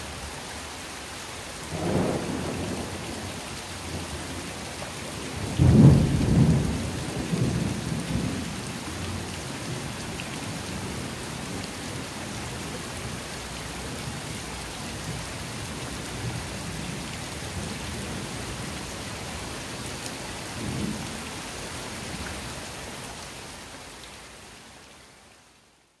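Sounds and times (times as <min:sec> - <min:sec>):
rain on concrete: 0:00.0 - 0:26.0
rolling thunder: 0:01.8 - 0:03.2, 0:05.4 - 0:09.2.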